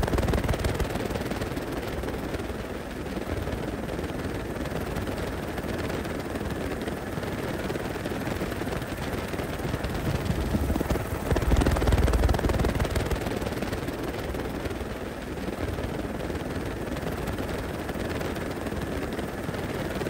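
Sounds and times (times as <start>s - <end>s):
helicopter rotor and engine rumble: 0.0s - 20.0s.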